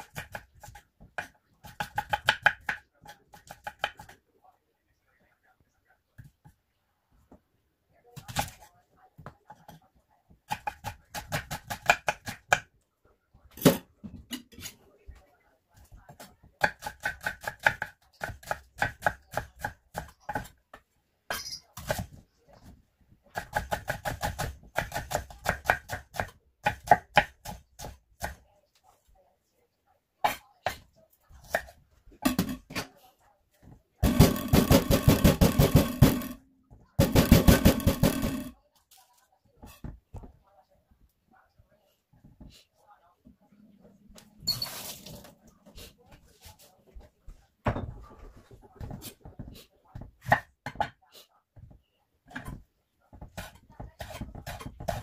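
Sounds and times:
knife chopping on cutting board: 0:00.0 - 0:04.2, 0:10.5 - 0:12.7, 0:16.1 - 0:20.6, 0:23.3 - 0:28.4, 0:48.8 - 0:51.0, 0:52.3 - 0:55.0.

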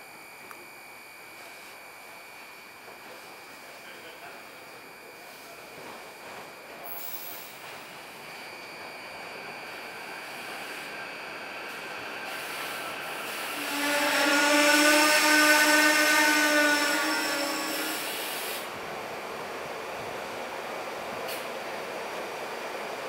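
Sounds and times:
train pitched whine: 0:00.0 - 0:23.0
train rushing noise: 0:05.8 - 0:23.0.

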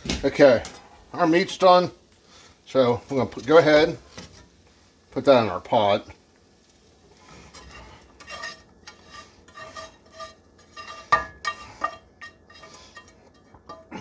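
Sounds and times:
spatula scraping a skillet: 0:02.4 - 0:04.9, 0:06.7 - 0:14.0.

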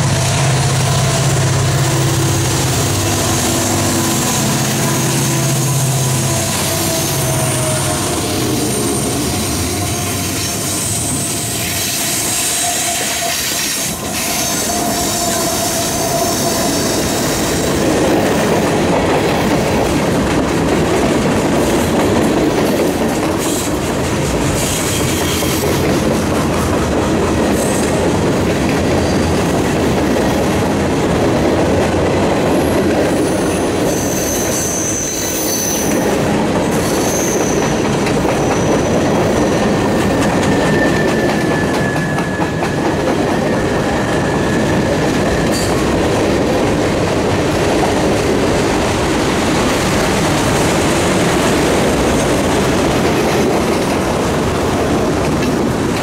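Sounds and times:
diesel locomotive engines: 0:00.0 - 0:56.0
train wheels on rails: 0:00.0 - 0:56.0
high wheel squeal: 0:03.9 - 0:17.6, 0:33.1 - 0:36.2, 0:36.8 - 0:45.8.

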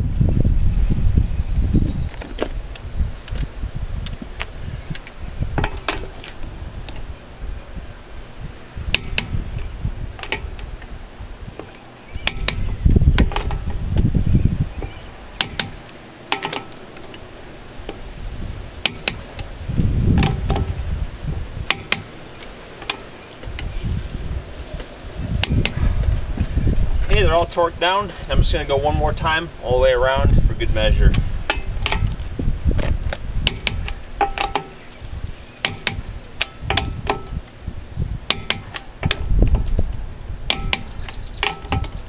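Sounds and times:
wind buffeting microphone: 0:00.0 - 0:16.0, 0:16.7 - 0:42.0
torque wrench clicking: 0:12.2 - 0:14.1, 0:15.4 - 0:17.2, 0:18.8 - 0:19.5, 0:21.7 - 0:23.7, 0:25.4 - 0:25.8, 0:33.4 - 0:34.8, 0:35.6 - 0:37.3, 0:38.3 - 0:39.6, 0:40.5 - 0:42.0.

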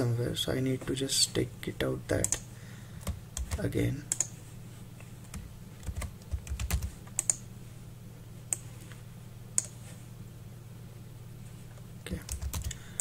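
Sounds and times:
keyboard keystrokes: 0:05.8 - 0:07.4, 0:12.3 - 0:12.8.

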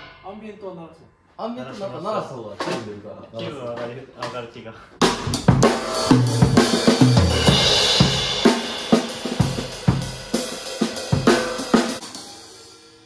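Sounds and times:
band playing: 0:05.4 - 0:12.6
crashing cymbals: 0:05.8 - 0:13.0.

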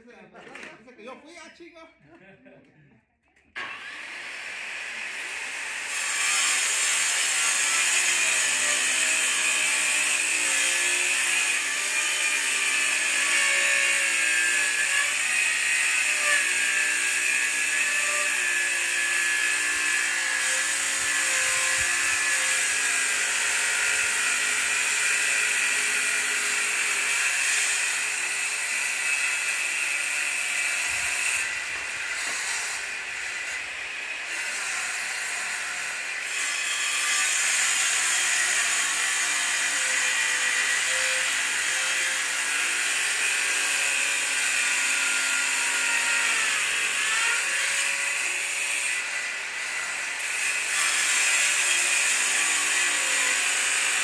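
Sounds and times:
power tool motor running: 0:03.6 - 0:07.1.

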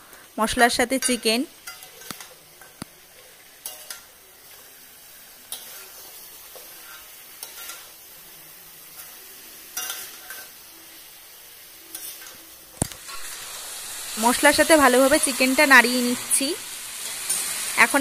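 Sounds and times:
chicken sizzling in oil: 0:00.0 - 0:18.0
metal spatula scraping pan: 0:09.8 - 0:10.6.

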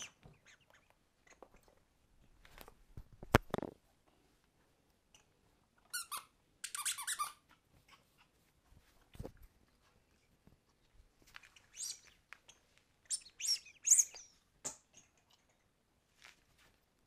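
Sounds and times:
squeaky dog toy squeaking: 0:05.9 - 0:07.6.

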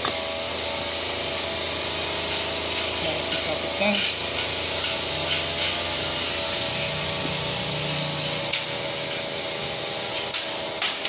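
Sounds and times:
machine hum and hiss: 0:00.0 - 0:11.0.

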